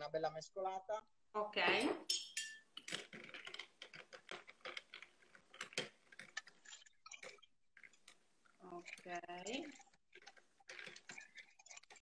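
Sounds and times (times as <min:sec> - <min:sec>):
ice clinking against glass: 0:02.1 - 0:03.6.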